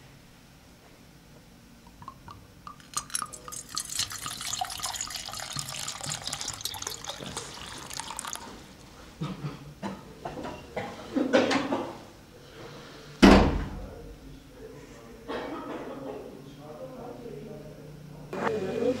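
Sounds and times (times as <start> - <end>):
water dripping: 1.9 - 8.6
water pouring and splashing: 2.8 - 8.7.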